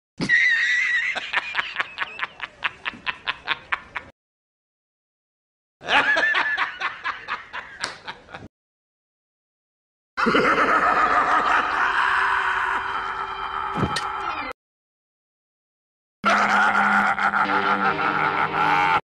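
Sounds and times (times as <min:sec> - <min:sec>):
cartoon laughter: 0:00.2 - 0:04.1, 0:10.2 - 0:13.6, 0:16.2 - 0:19.0.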